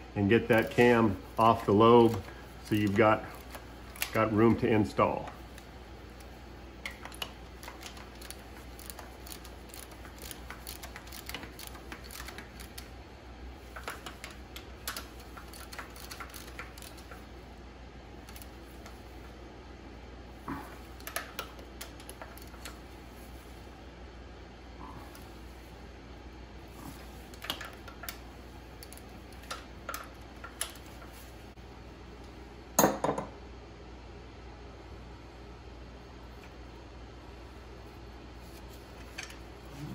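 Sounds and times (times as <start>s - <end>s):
socket ratchet clicking: 6.8s - 12.9s, 13.7s - 17.2s.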